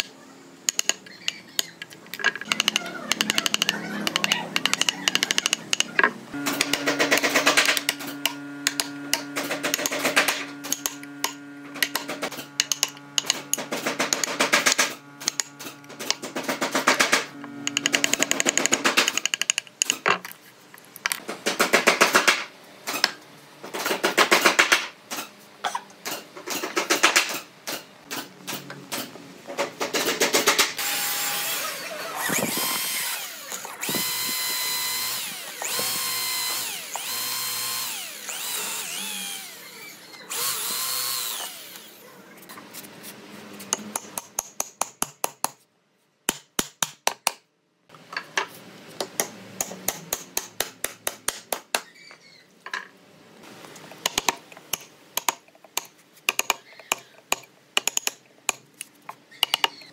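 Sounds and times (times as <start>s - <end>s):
cordless drill boring into wood: 30.8s - 42.0s.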